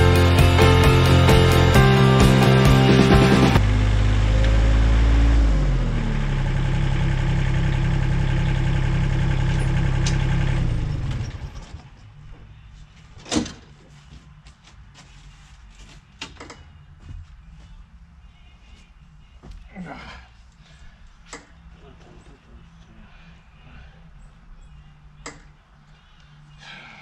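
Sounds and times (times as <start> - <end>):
excavator diesel engine idling: 5.8 - 11.6.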